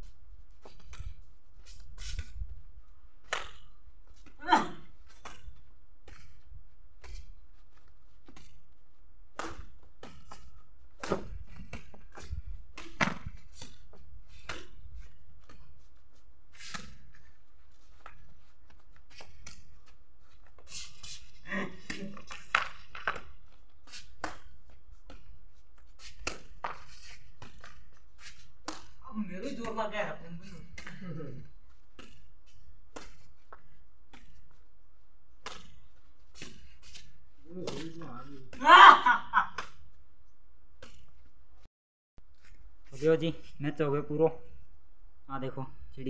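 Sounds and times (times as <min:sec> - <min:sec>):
rackets hitting shuttlecock: 0:03.2 - 0:06.4, 0:09.3 - 0:15.8, 0:20.4 - 0:34.6, 0:35.4 - 0:39.9.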